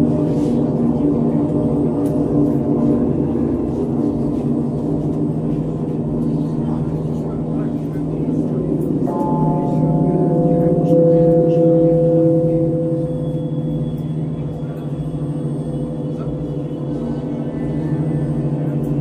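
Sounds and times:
low drone: 0.0s - 19.0s
ringing tones: 8.8s - 19.0s.

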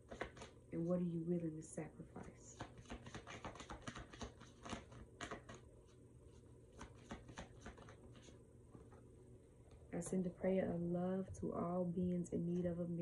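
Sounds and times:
cards being shuffled: 0.0s - 0.6s, 2.5s - 9.0s.

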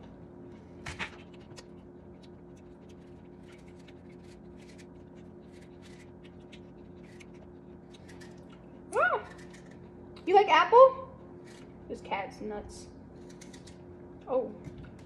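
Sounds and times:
steady low hum: 0.0s - 15.0s
knife scraping apple skin: 2.5s - 8.4s.

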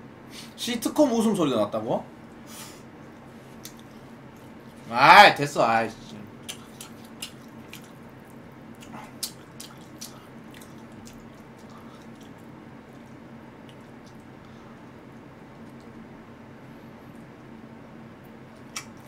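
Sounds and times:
faint steady hum: 0.0s - 19.0s
wet mouth eating sounds: 3.5s - 4.6s, 6.1s - 14.6s, 18.5s - 19.0s.

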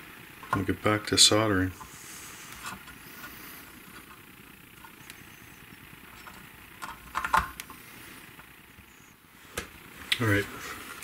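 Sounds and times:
cordless drill motor hum: 1.8s - 9.9s.

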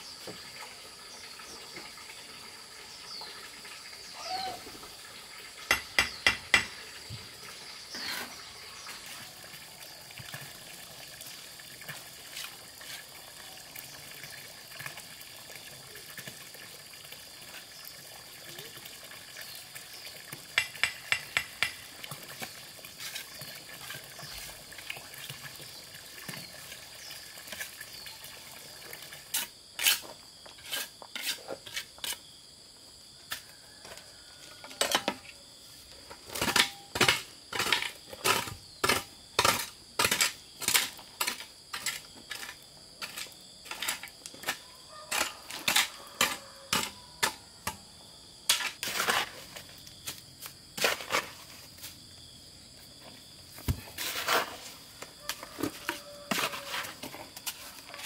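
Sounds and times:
trowel scraping wet mortar: 29.2s - 32.3s, 36.4s - 47.4s, 48.5s - 49.7s, 50.8s - 51.5s, 53.7s - 54.9s, 55.7s - 58.0s
hoe chopping gravelly soil: 36.2s - 47.0s, 48.5s - 52.0s, 53.5s - 58.0s.

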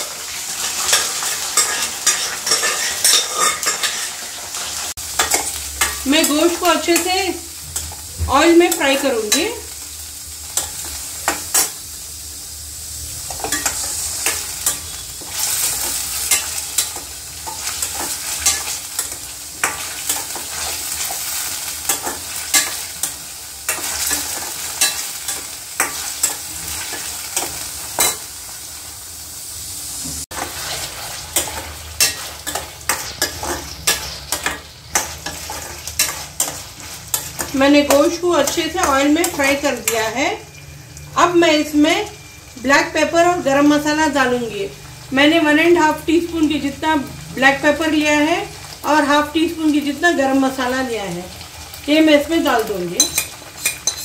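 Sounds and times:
meat sizzling in hot oil: 0.0s - 54.0s
ladle scraping and clinking pan: 0.9s - 4.3s, 53.0s - 54.0s.

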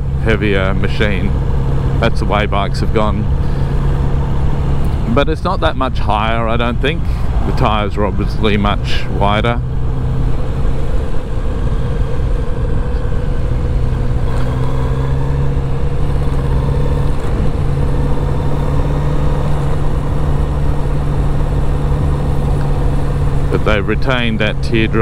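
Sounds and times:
motorcycle engine running: 0.0s - 25.0s
road rumble: 0.0s - 25.0s
wind: 0.0s - 25.0s.

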